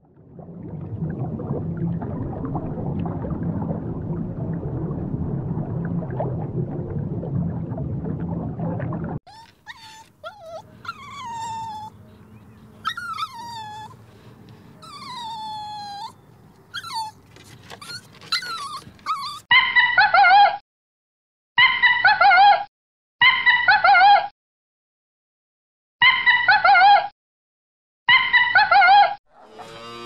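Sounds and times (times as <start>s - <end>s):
small dog whining: 9.3s - 12.0s, 12.8s - 14.0s, 14.8s - 19.5s
wavering animal call: 9.3s - 14.0s, 14.8s - 16.2s.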